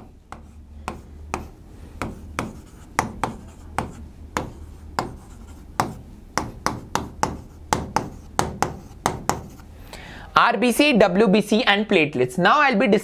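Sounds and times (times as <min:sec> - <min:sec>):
pen tapping on a board: 0:00.0 - 0:09.7
faint low hum: 0:00.0 - 0:12.1.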